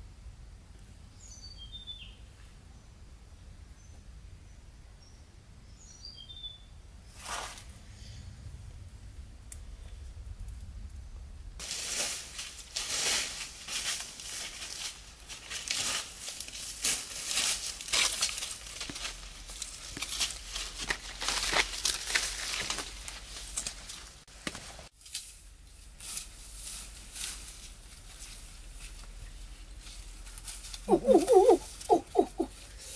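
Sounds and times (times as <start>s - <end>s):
footsteps crunching dry grass: 11.6s - 31.8s.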